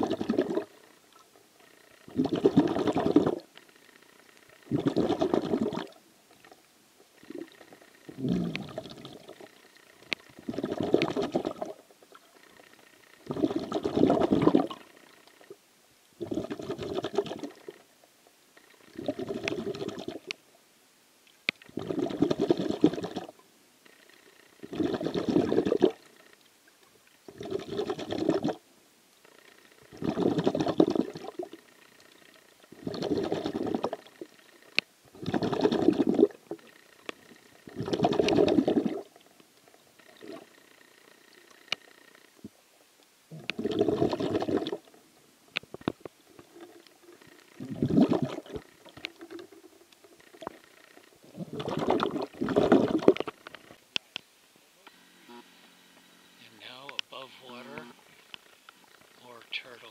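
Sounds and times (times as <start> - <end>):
underwater breathing bubbles: 2.1 - 3.4, 4.7 - 6.0, 7.2 - 9.5, 10.4 - 11.8, 13.3 - 14.8, 16.2 - 17.6, 18.9 - 20.3, 21.7 - 23.3, 24.6 - 26.0, 27.3 - 28.6, 29.9 - 31.5, 32.8 - 34.1, 35.2 - 36.4, 37.7 - 39.1, 43.3 - 44.9, 47.6 - 49.5, 51.2 - 53.4.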